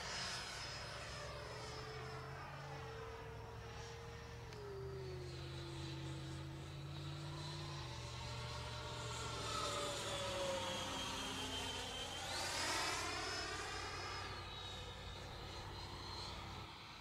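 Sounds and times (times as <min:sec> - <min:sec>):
model jet fan whining: 0:00.0 - 0:17.0.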